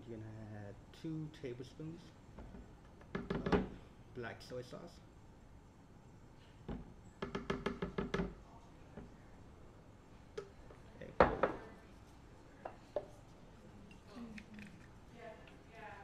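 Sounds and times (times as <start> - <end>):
knocking and clatter: 2.4 - 3.7, 6.7 - 8.4.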